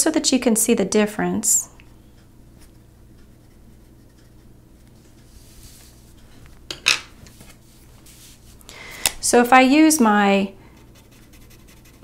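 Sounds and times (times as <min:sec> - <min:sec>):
pencil scratching on paper: 0:10.7 - 0:12.0.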